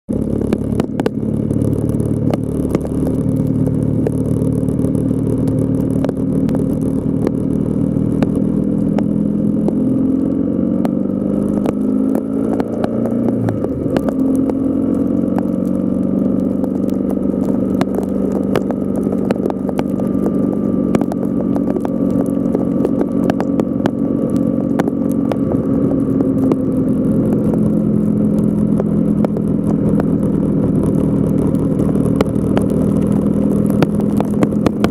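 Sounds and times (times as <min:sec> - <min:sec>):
vehicle engine running: 0:00.0 - 0:34.9
sleet and rain ticking on camera: 0:00.1 - 0:34.9.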